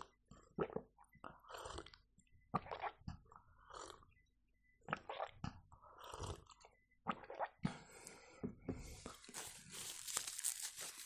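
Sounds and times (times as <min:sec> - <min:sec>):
sipping and swallowing: 0:00.0 - 0:04.2, 0:04.9 - 0:07.7
soft rustle: 0:09.1 - 0:11.0.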